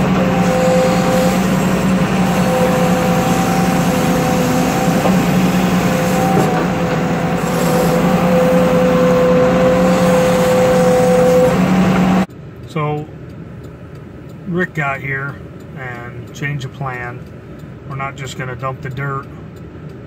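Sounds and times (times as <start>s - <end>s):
steady hydraulic whine: 0.0s - 12.3s
diesel engine under load: 0.0s - 20.0s.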